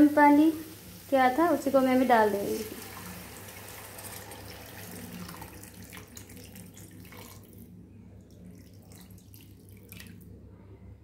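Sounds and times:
water pouring into sauce: 2.4 - 10.4.

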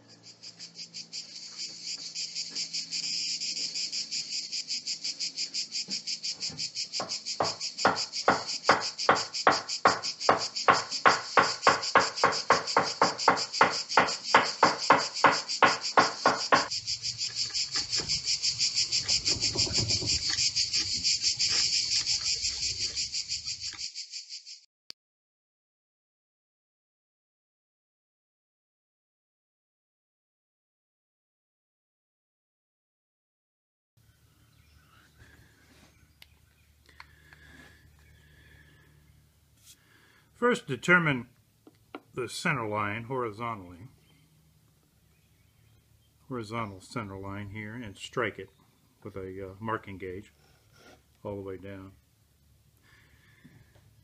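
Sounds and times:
crickets chirping: 0.0 - 24.7, 34.0 - 50.5, 51.2 - 54.0
sharp evenly spaced knocks: 5.7 - 23.8.

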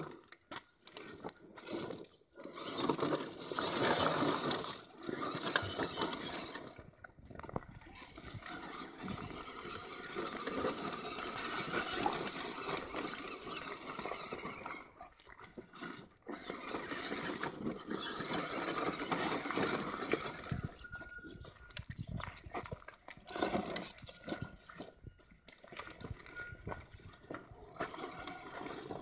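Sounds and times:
rc truck motors whining: 0.0 - 21.8, 23.2 - 29.0
tyres scrabbling on stones: 0.0 - 29.0.

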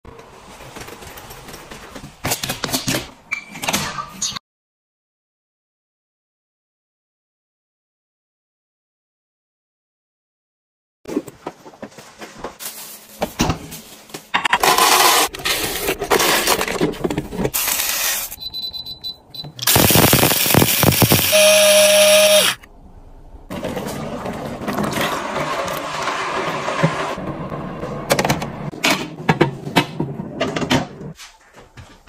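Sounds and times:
control panel beeps: 18.4 - 22.4
steady electronic tone: 19.6 - 22.6.

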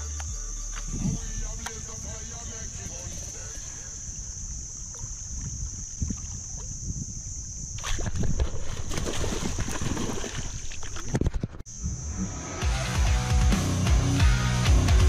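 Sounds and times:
water lapping against boat: 2.9 - 6.9
fish splashing and thrashing: 7.7 - 11.7.

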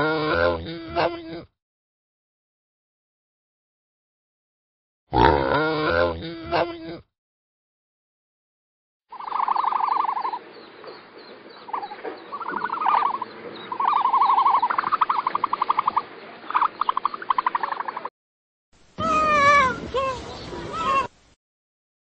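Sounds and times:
rapid trilling animal calls: 9.1 - 10.5, 11.5 - 18.1.

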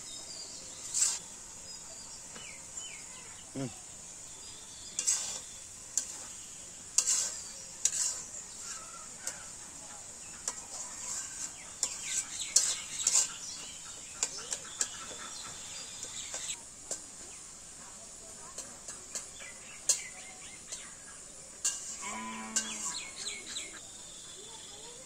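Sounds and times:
metal spatula scraping metal pan: 0.5 - 1.3, 4.4 - 17.0, 19.1 - 20.1, 21.6 - 23.8
chickens clucking: 8.6 - 16.6.

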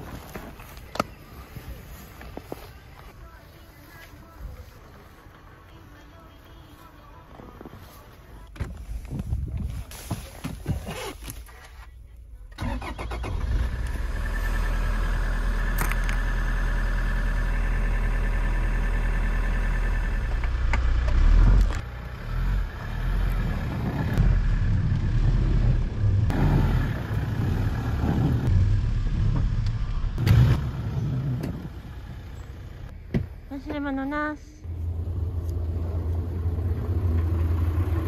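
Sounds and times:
diesel engine running: 12.5 - 33.5, 34.1 - 38.0.

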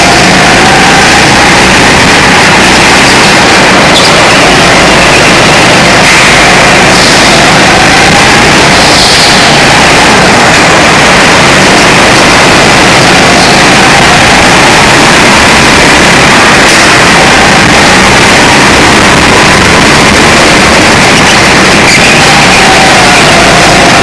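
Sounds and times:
go-kart engine running: 0.0 - 24.0.

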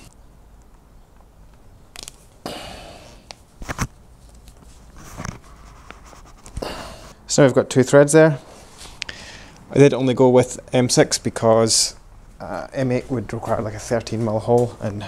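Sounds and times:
handling rustles: 3.3 - 6.8.

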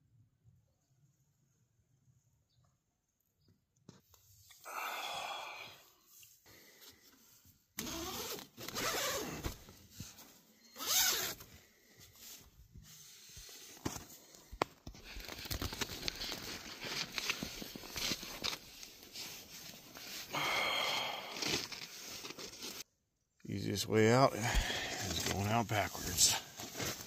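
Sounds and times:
tent fabric rustling: 6.9 - 14.2, 15.0 - 22.9, 24.9 - 27.0
tent zipper being pulled: 7.8 - 9.8, 10.8 - 11.5, 21.0 - 22.8.

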